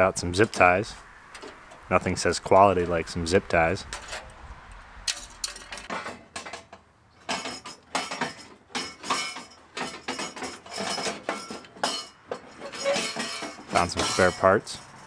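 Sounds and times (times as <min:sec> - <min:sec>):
metal and plastic parts rattling: 0:03.8 - 0:04.3, 0:05.1 - 0:15.0.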